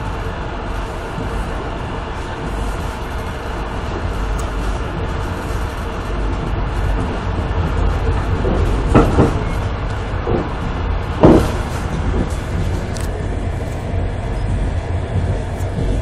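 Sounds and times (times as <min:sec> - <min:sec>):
train wheels rumbling on rails: 0:00.0 - 0:16.0
knocks: 0:07.0 - 0:09.6, 0:10.2 - 0:12.8.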